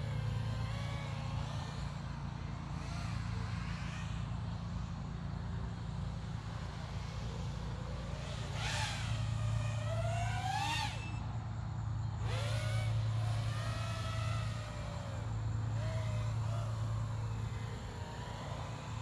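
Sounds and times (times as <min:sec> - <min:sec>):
constant low hum: 0:00.0 - 0:19.0
drone motors whining: 0:00.0 - 0:19.0.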